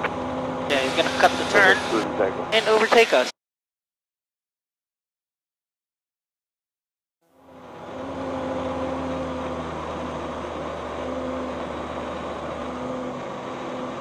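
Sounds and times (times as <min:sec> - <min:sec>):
aircraft engine and propeller droning: 0:00.0 - 0:03.3, 0:07.4 - 0:14.0.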